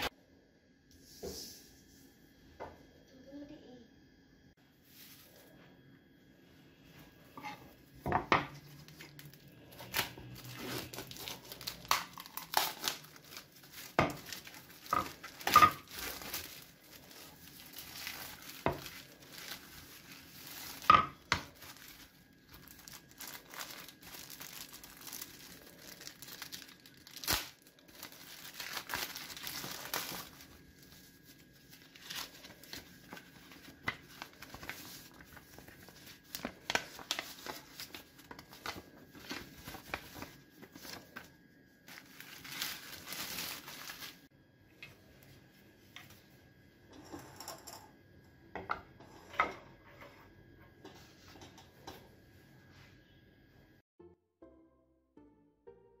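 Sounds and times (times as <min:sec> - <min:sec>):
plastic wrap crinkling and tearing: 0:08.5 - 0:44.3.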